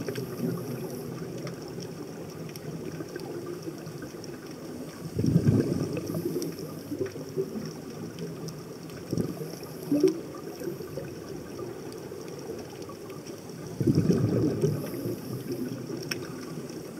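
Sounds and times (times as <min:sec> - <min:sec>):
faint clicks: 0:00.0 - 0:16.9
air bubbling underwater: 0:05.2 - 0:07.4, 0:13.8 - 0:15.8.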